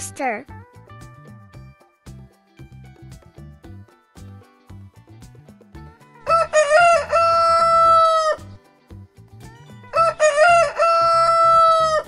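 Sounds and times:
rooster crowing: 0:06.2 - 0:08.5, 0:09.9 - 0:12.0.

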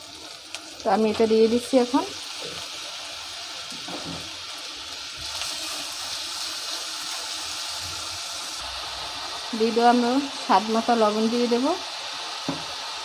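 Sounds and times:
potato sizzling in hot oil: 0:00.0 - 0:13.0.

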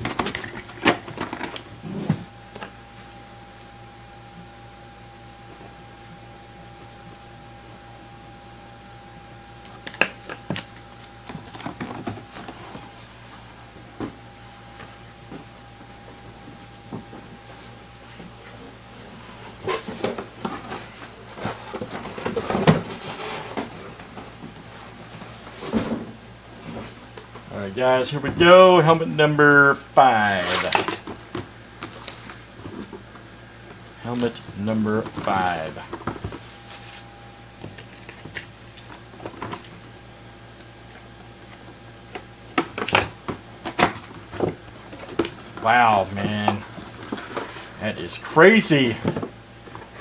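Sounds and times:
cardboard scraping: 0:17.0 - 0:27.1, 0:30.3 - 0:31.1, 0:34.2 - 0:37.1.

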